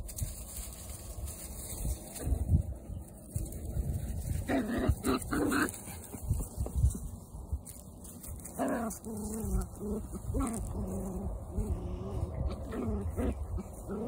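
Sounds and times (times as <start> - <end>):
puppies growling and whining: 4.3 - 6.2, 8.4 - 14.0
puppies yelping: 4.4 - 6.3, 8.4 - 14.0.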